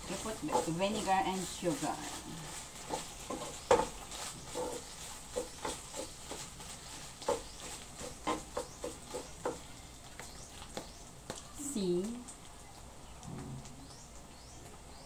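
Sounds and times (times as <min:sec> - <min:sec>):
wooden spoon scraping metal pan: 0:00.0 - 0:09.6.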